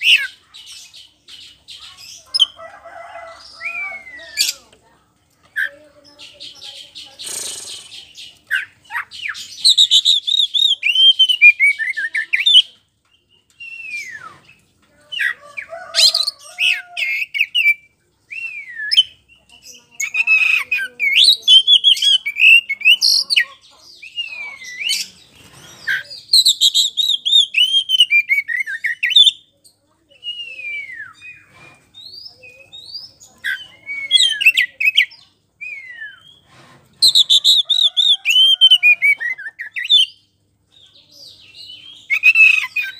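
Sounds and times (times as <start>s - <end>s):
bird whistling song with trills: 13.5s - 14.5s, 17.3s - 19.3s, 30.2s - 36.4s, 37.0s - 40.2s, 41.7s - 42.9s.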